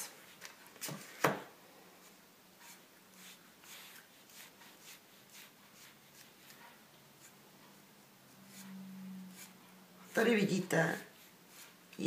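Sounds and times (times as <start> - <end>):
low steady hum: 1.5 - 12.0
paintbrush swishing on wood: 8.3 - 12.0.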